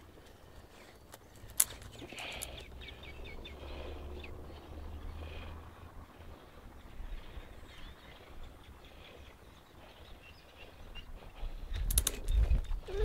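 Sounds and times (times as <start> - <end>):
faint bird chirps: 0.0 - 13.0
wind on microphone: 11.0 - 13.0.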